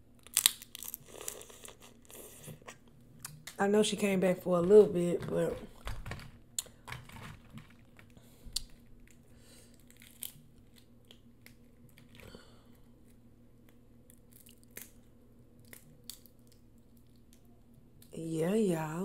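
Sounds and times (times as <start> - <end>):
crawfish shells cracking: 0.2 - 2.0, 4.7 - 17.5.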